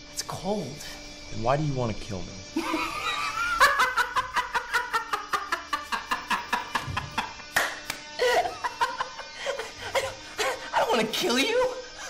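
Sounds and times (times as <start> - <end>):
background music: 0.0 - 12.0
man laughing hard: 2.6 - 10.7.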